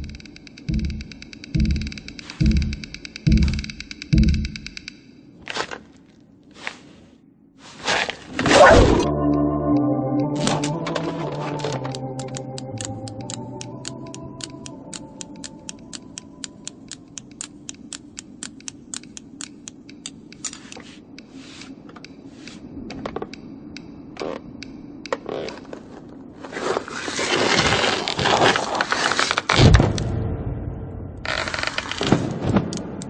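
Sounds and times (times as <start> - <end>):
knitting needles clicking: 0.0 - 5.1, 10.3 - 25.7
heavy thump: 1.6 - 4.6.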